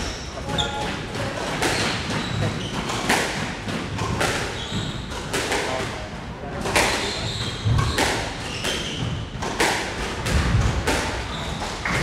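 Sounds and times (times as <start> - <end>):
squash ball hits: 0.0 - 12.0
shoe squeaks on wooden floor: 0.1 - 1.1, 1.7 - 2.9, 4.5 - 5.1, 6.9 - 9.3, 11.2 - 12.0.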